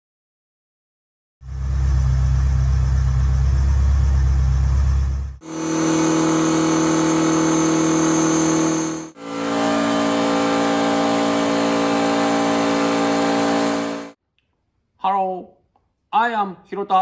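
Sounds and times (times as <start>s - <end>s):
car engine running: 1.5s - 14.2s.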